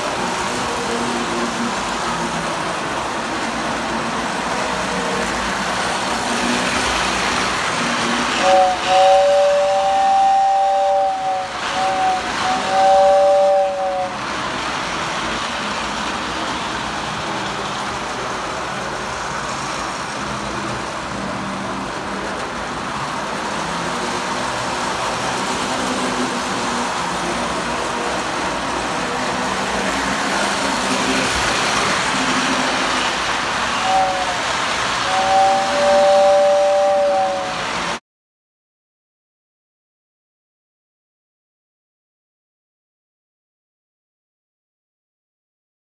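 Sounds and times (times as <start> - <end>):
model train rattle and hum: 0.0 - 38.0
two-tone train whistle: 7.8 - 14.3, 32.3 - 38.0.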